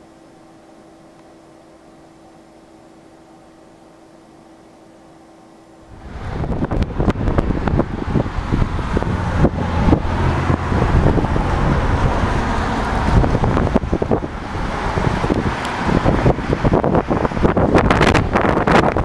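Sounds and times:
road traffic: 5.7 - 19.0
wind buffeting microphone: 5.9 - 19.0.

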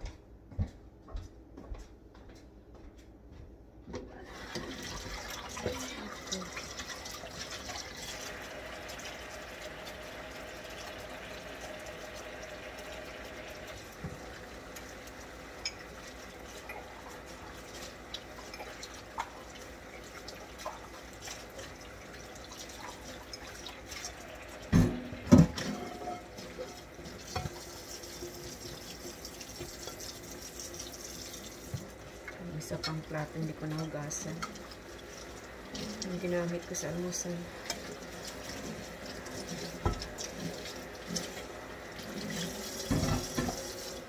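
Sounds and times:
tap water running: 3.9 - 44.0
dishware clinking: 24.7 - 26.4.

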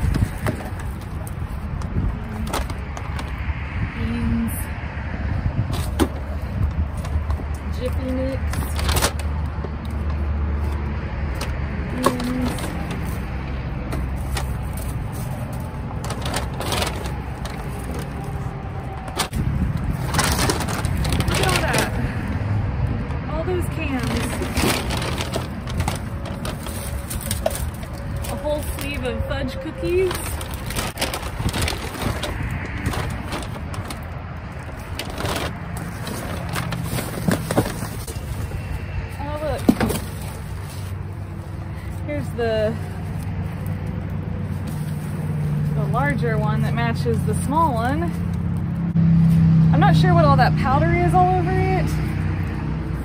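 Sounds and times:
trash rustling and clattering: 0.0 - 3.4, 5.6 - 22.3, 23.0 - 43.7.

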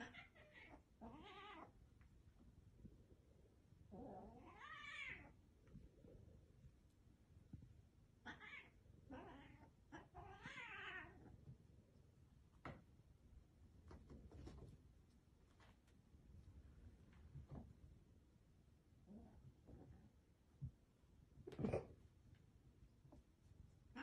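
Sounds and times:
cat meowing: 0.0 - 1.7, 3.9 - 5.3, 8.2 - 11.3.

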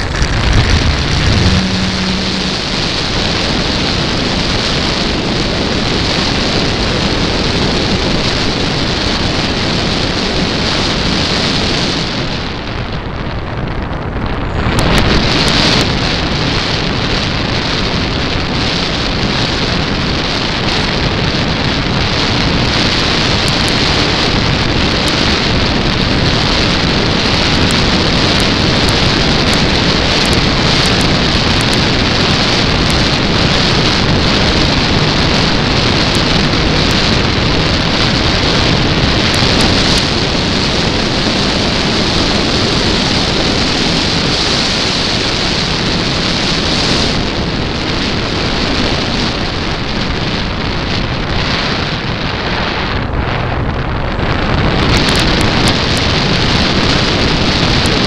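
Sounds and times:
spinning propeller: 0.0 - 4.2
wind rushing over microphone: 0.0 - 58.0.

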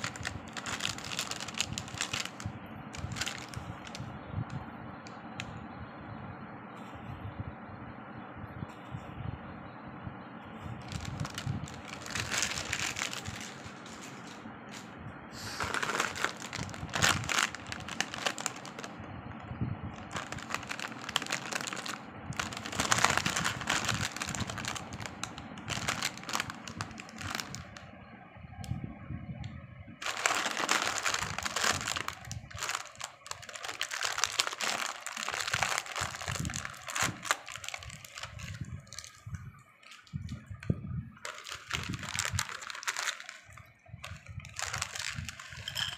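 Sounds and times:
plastic snack packets crinkling: 0.0 - 4.0, 10.8 - 19.0, 19.9 - 27.8, 30.0 - 40.3, 41.2 - 45.9.

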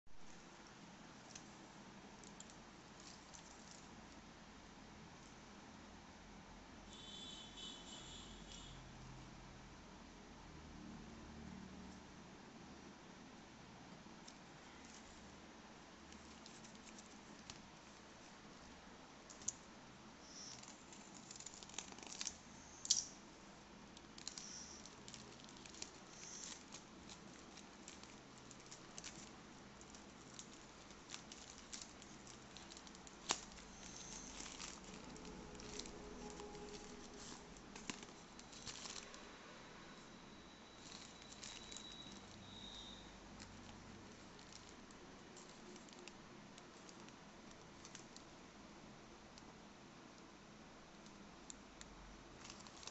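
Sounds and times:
plastic bag crinkling: 2.2 - 4.0, 16.1 - 18.4, 19.3 - 23.2, 23.8 - 39.3, 40.7 - 48.3, 52.3 - 52.9
sharp clicks and crackles: 19.3 - 19.7, 20.3 - 23.2, 23.9 - 39.2, 40.8 - 48.3.

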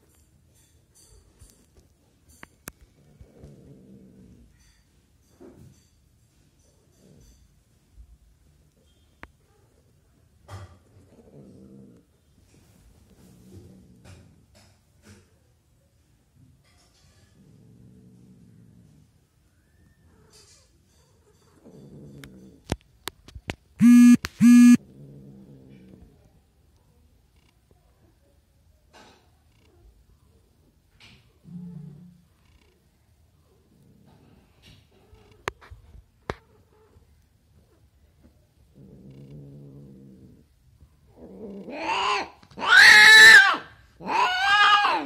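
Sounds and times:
cat growling: 11.0 - 12.2, 24.8 - 26.1, 38.6 - 45.0
sharp clicks: 23.8 - 24.8
loud cat cries: 41.7 - 45.0.

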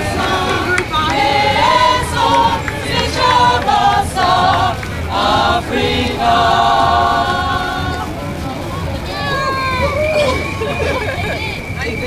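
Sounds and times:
women's choir singing: 0.0 - 9.2
crowd noise: 0.0 - 12.0.

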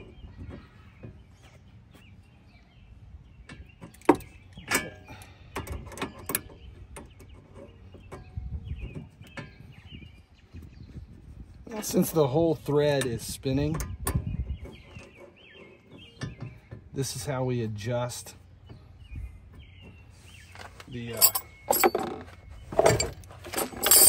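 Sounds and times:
wrench clinking on nut: 21.1 - 24.0.

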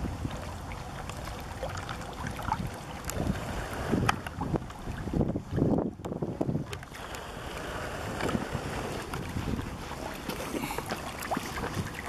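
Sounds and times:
water lapping: 0.0 - 12.0
wind buffeting microphone: 0.0 - 12.0
dog swimming splashes: 6.6 - 12.0.

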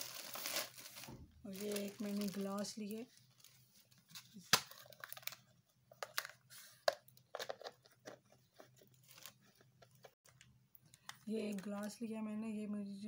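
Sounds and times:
plastic cup clicks and crinkles: 4.5 - 12.0.

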